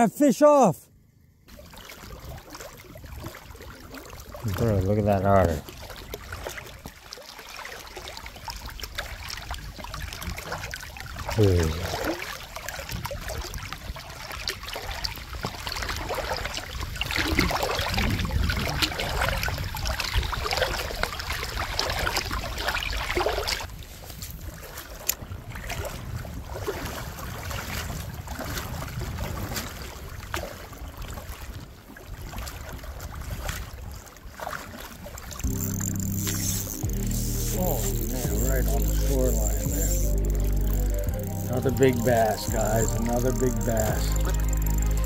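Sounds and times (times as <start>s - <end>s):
water sloshing and swirling: 1.4s - 43.1s
wind on microphone: 15.4s - 34.0s.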